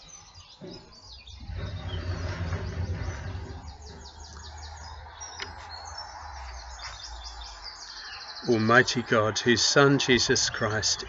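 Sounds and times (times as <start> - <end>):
small birds chirping: 0.0 - 11.0
low rumble: 1.2 - 6.4.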